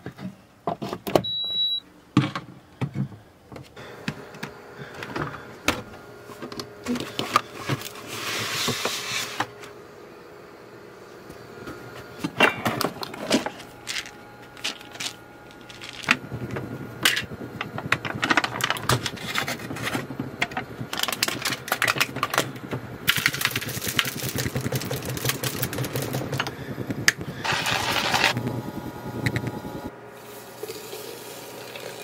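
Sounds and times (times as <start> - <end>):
coffee grinder grinding beans: 6.3 - 9.8, 12.7 - 32.0
water pouring: 30.6 - 32.0.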